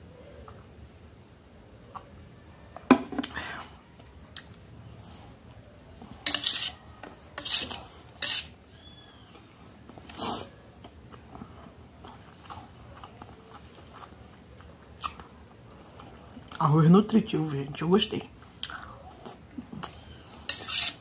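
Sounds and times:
metal spoon scraping on metal plate: 0:06.2 - 0:06.8, 0:07.4 - 0:08.6, 0:20.4 - 0:21.0.

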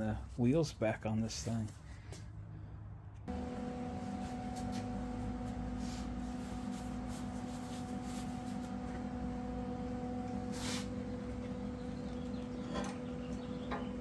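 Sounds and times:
welder humming: 0:03.3 - 0:14.0
welding gun cable rustling: 0:04.0 - 0:13.0.

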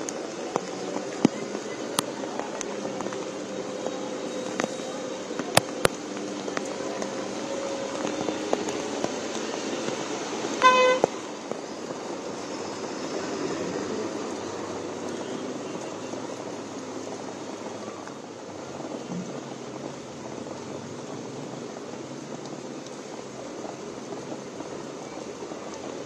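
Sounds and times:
heavy rain hissing: 0:00.0 - 0:26.0
traffic on a wet road: 0:00.0 - 0:26.0
vehicle horn honk: 0:10.6 - 0:11.1.

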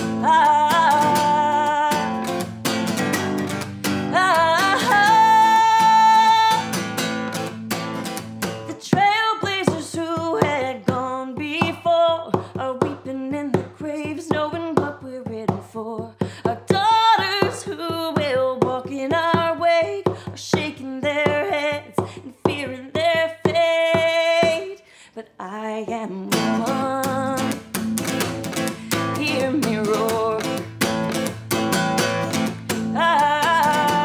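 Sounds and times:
woman singing: 0:00.0 - 0:07.3, 0:08.7 - 0:34.0
acoustic guitar strumming: 0:00.0 - 0:15.8, 0:25.9 - 0:34.0.

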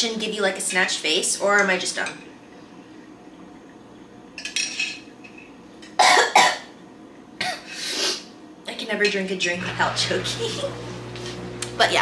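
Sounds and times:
woman coughing: 0:06.0 - 0:06.7.

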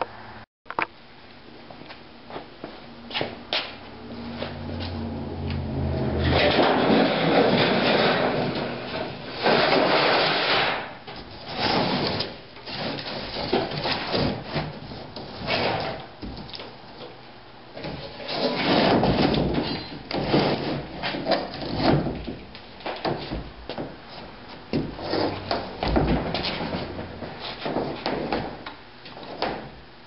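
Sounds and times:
wooden panel scraping on workbench: 0:06.3 - 0:16.0, 0:24.8 - 0:28.2.

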